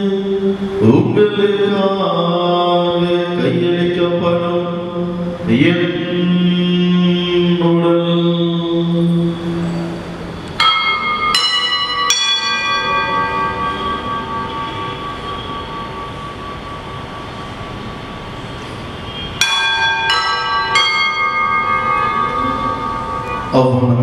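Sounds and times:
bell strokes ringing: 9.6 - 23.9.

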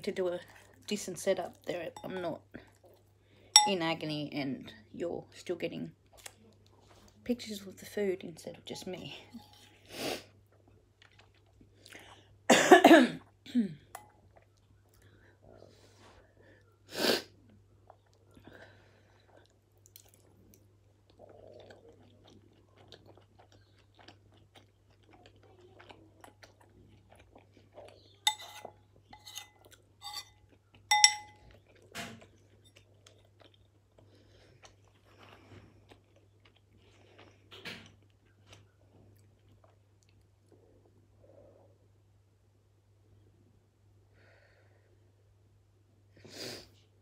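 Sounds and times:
close chewing: 0.4 - 1.7, 10.5 - 12.1, 19.2 - 40.5
metal spoon clinking ceramic bowl: 2.0 - 2.2, 3.6 - 3.8, 28.3 - 31.4.

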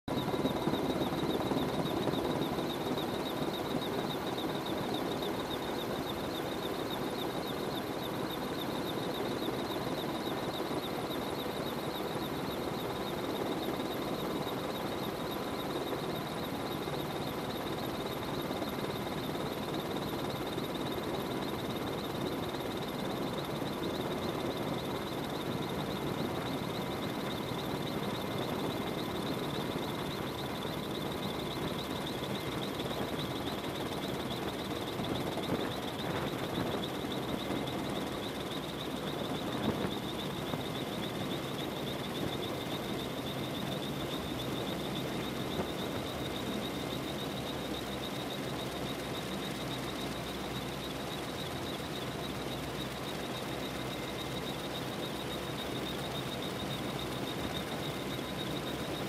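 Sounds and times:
helicopter rotor and turbine rush: 0.1 - 59.0.

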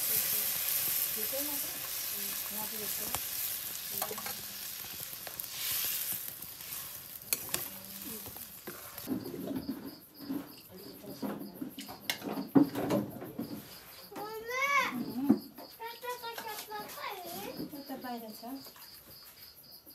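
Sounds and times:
curry sizzling in a pan: 0.0 - 9.6
ladle clicking against pan: 7.3 - 8.9.

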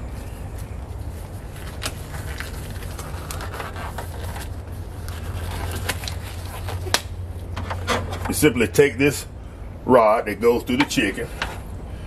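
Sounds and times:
steady low hum: 0.0 - 12.0
rubber glove crackling: 0.1 - 7.2.

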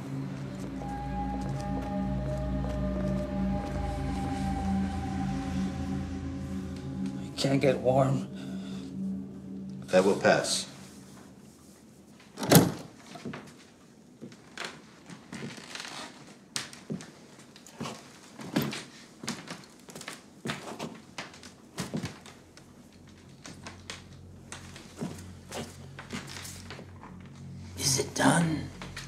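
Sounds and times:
faint low drone: 0.0 - 12.3, 22.3 - 29.0.

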